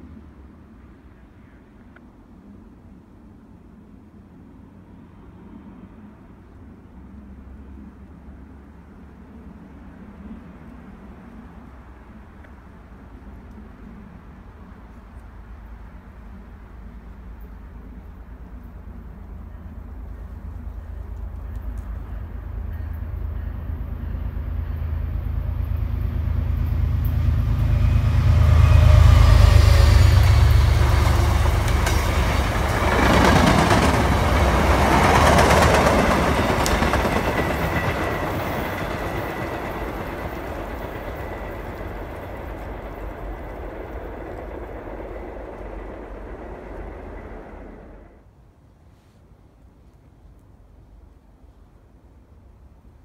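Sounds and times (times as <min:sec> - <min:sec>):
diesel locomotive engine rumble: 0:09.8 - 0:48.3
train wheels on rails: 0:20.5 - 0:48.2
high ringing tone from rails: 0:22.0 - 0:48.2.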